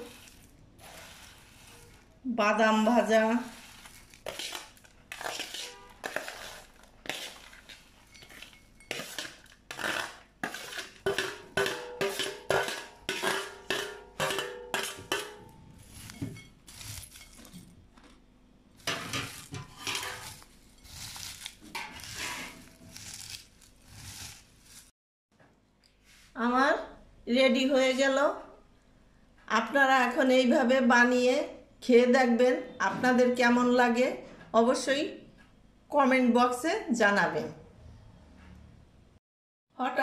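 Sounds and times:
hand stirring crunchy snacks: 0:00.0 - 0:02.2, 0:02.8 - 0:11.3, 0:15.8 - 0:18.2, 0:18.8 - 0:24.9
metal plate clinking on bowl: 0:11.1 - 0:16.6.

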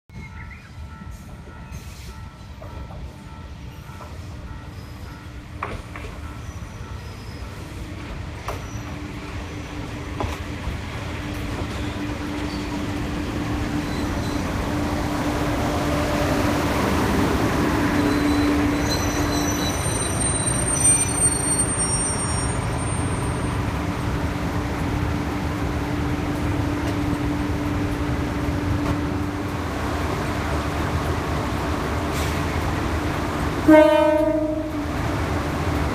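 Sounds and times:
train brakes squealing: 0:00.1 - 0:02.6, 0:03.6 - 0:05.2, 0:06.0 - 0:07.8, 0:08.4 - 0:09.9, 0:11.3 - 0:13.0, 0:13.6 - 0:14.7, 0:17.8 - 0:23.7
diesel train engine drone: 0:00.2 - 0:35.9.

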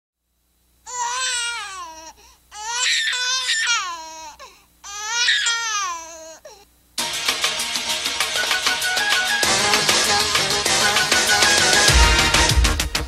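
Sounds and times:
woman singing unaccompanied: 0:09.4 - 0:11.8.

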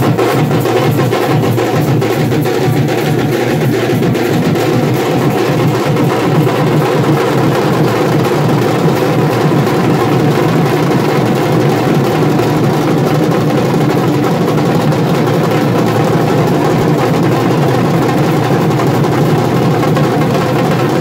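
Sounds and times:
loud dense drumming: 0:00.0 - 0:21.0.

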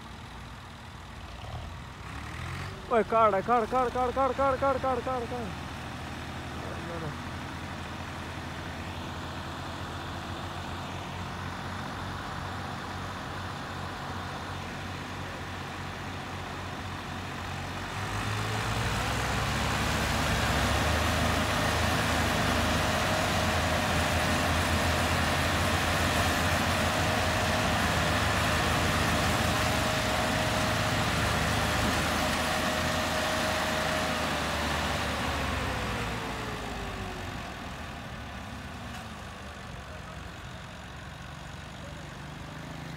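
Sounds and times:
tractor diesel engines revving: 0:00.0 - 0:42.9.

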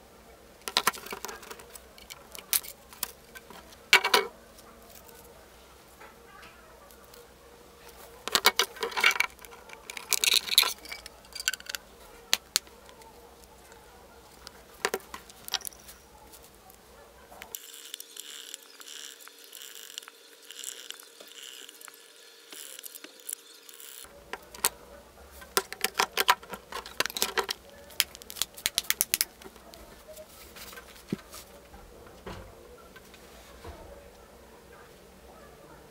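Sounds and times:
phone parts clicking and tapping: 0:00.6 - 0:04.3, 0:08.2 - 0:16.0, 0:22.6 - 0:24.8, 0:25.4 - 0:29.8
small screwdriver on screws: 0:17.5 - 0:24.6.

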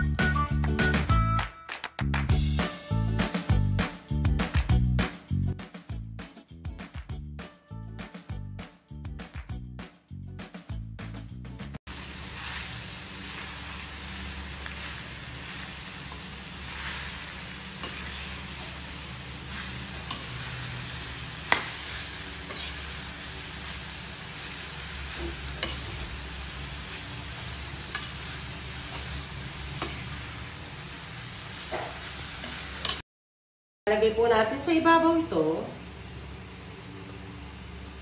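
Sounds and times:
meat sizzling: 0:11.9 - 0:33.0
spoon scraping metal pan: 0:17.8 - 0:18.9, 0:19.5 - 0:20.8, 0:21.4 - 0:23.1, 0:25.1 - 0:26.1, 0:27.8 - 0:30.2, 0:32.4 - 0:33.0.

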